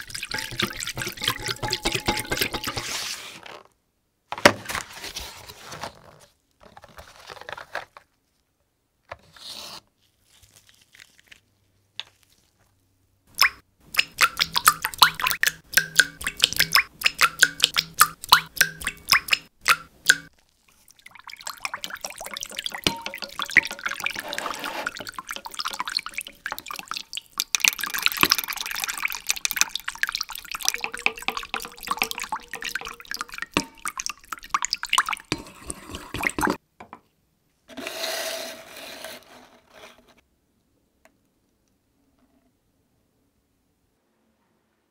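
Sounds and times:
water running and splashing: 0.0s - 3.1s, 13.3s - 36.6s.

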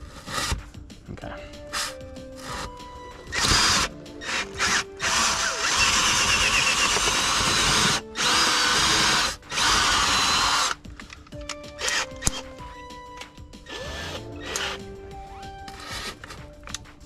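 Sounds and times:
cordless drill boring through wall: 3.3s - 10.8s, 11.8s - 12.4s, 13.7s - 14.8s, 15.7s - 16.3s.

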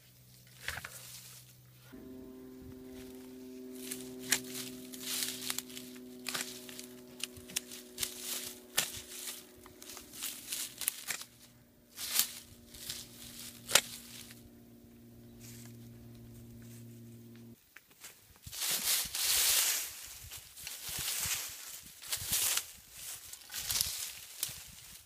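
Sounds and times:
rustling leaves: 0.0s - 25.0s
loppers snipping stems: 1.9s - 14.5s.

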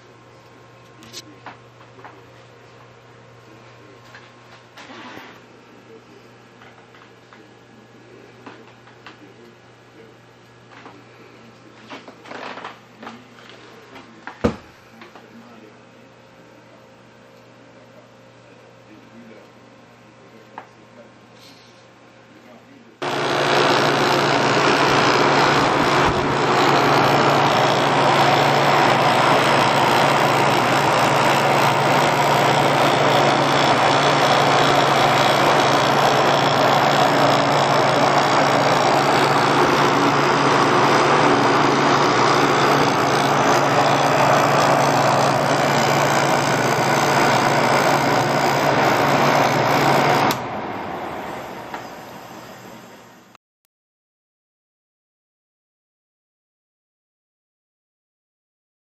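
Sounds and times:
compressor humming: 23.0s - 53.4s.

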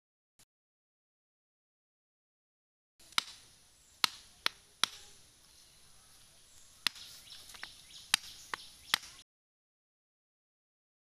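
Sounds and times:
knife chopping bamboo: 4.0s - 5.1s.

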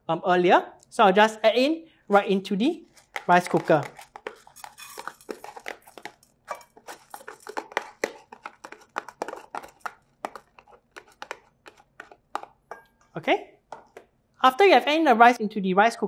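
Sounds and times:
rice paddle scraping plastic container: 2.8s - 12.6s.

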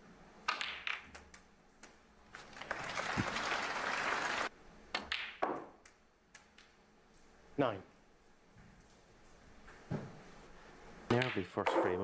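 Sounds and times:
snooker balls knocking together: 0.5s - 1.3s
audience applause: 2.4s - 4.5s.

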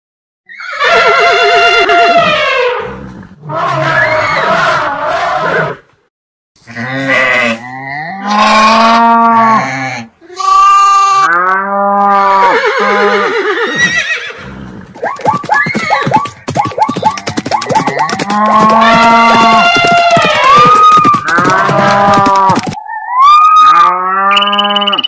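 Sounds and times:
cartoon farm animal calls: 15.0s - 25.0s.

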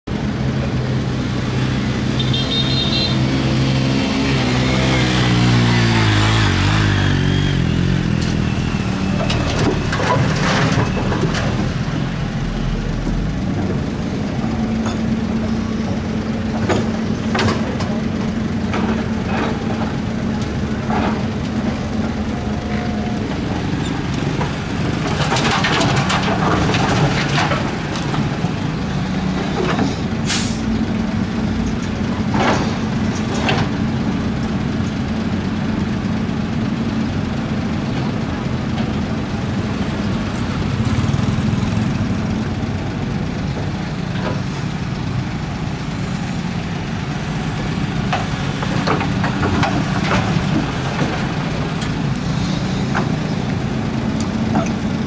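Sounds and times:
excavator diesel engine under load: 0.1s - 55.0s.

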